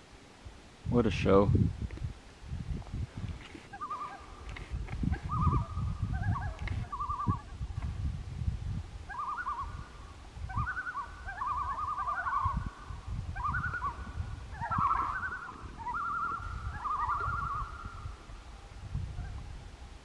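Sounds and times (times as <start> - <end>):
loons tremolo calls: 3.7 - 4.4, 5.1 - 7.5, 9.1 - 18.2.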